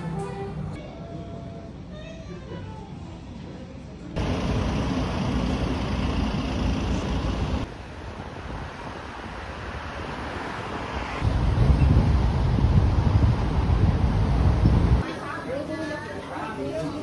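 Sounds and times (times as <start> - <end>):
street traffic rushing: 4.1 - 15.0.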